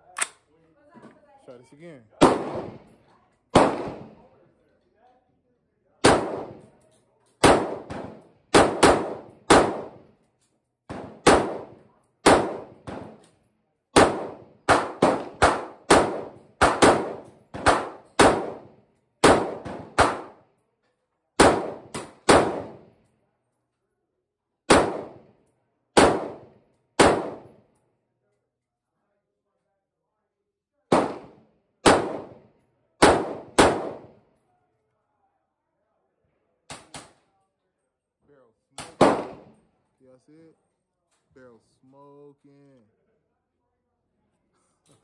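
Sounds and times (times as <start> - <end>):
pistol firing shots: 2.2 - 2.9, 3.5 - 4.2, 6.0 - 6.7, 7.4 - 10.0, 10.9 - 13.2, 14.0 - 20.4, 21.4 - 22.9, 24.7 - 25.2, 26.0 - 27.6, 30.9 - 34.1, 38.8 - 39.6.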